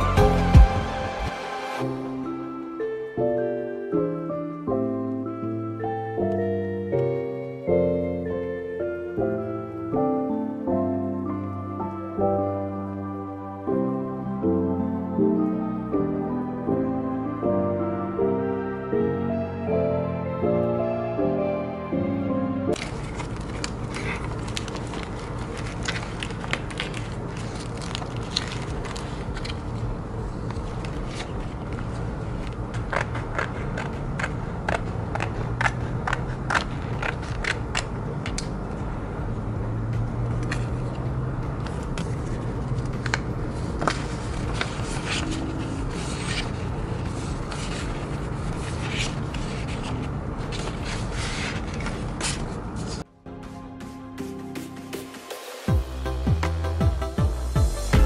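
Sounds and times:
paper and plastic rustling: 22.7 - 38.5, 40.4 - 53.1
low background hum: 22.7 - 53.1
plastic packets crinkling: 22.8 - 29.9.

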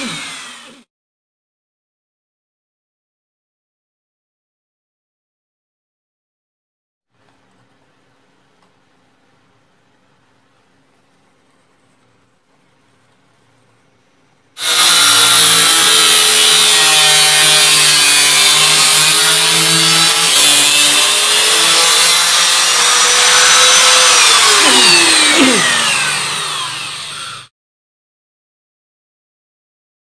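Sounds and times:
angle grinder cutting thin sheet: 0.0 - 0.9, 14.6 - 27.5.

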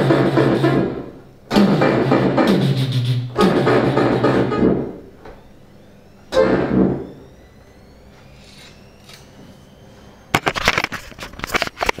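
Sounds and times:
low hum: 3.4 - 11.4.

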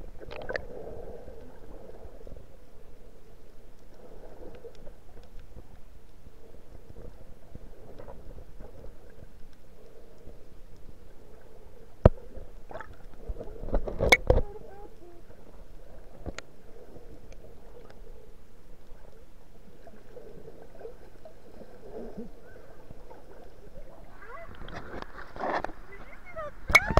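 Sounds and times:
muffled underwater sound: 11.2 - 26.9.

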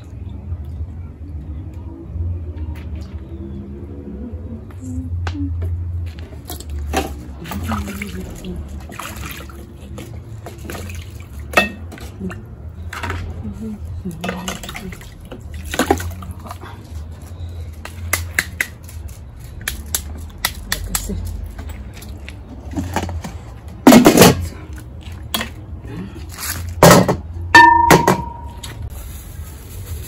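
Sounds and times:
pots and utensils knocking: 26.8 - 28.6.

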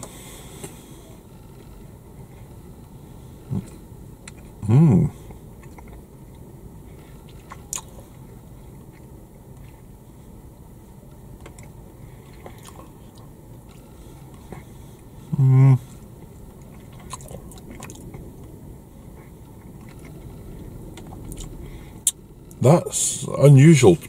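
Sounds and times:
person humming mmm: 4.6 - 5.2, 15.3 - 15.9
person chewing soft food: 5.3 - 10.0, 11.4 - 22.6.

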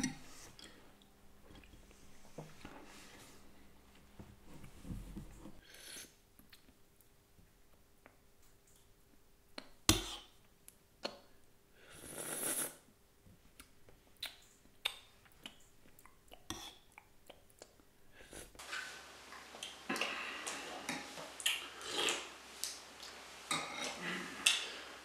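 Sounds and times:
person slurping soup: 11.8 - 12.8, 20.8 - 22.3.

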